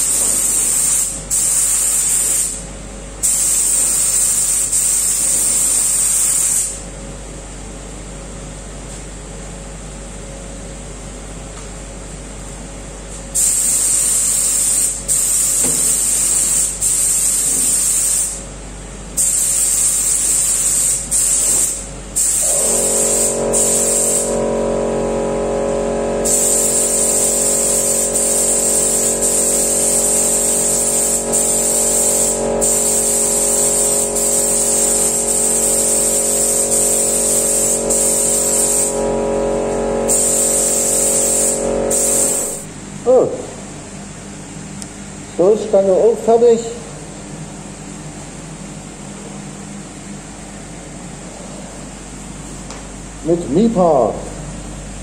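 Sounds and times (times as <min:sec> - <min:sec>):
spray gun hissing: 0:00.0 - 0:02.6, 0:03.2 - 0:06.8, 0:13.4 - 0:18.4, 0:19.2 - 0:25.1, 0:26.2 - 0:42.7
air compressor motor running: 0:00.0 - 0:06.9, 0:13.3 - 0:18.6, 0:19.2 - 0:43.6.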